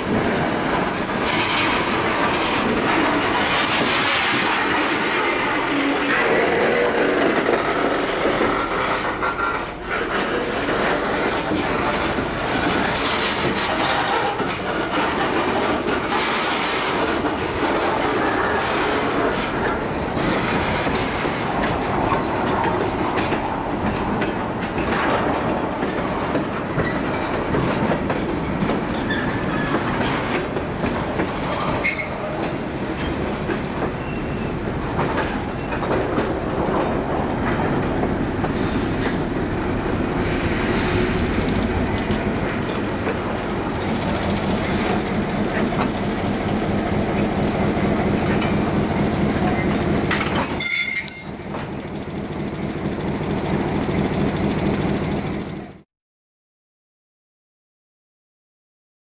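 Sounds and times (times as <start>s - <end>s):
wheels clicking over rail joints: 0.0s - 40.0s, 41.2s - 55.7s
diesel locomotive passing: 0.0s - 50.5s, 51.4s - 55.8s
freight cars rolling: 0.0s - 55.8s
wheels squealing: 4.4s - 8.0s, 31.6s - 33.2s, 33.9s - 35.9s, 49.4s - 51.5s.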